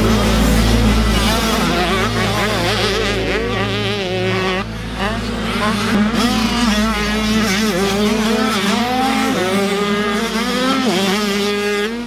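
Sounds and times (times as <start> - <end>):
motocross bike engines revving: 0.0 - 12.0.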